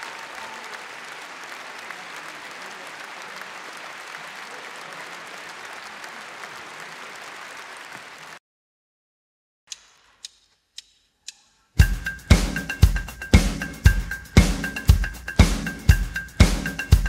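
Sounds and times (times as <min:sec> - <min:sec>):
audience applauding: 0:00.0 - 0:08.4
sharp count-in clicks: 0:09.7 - 0:11.6.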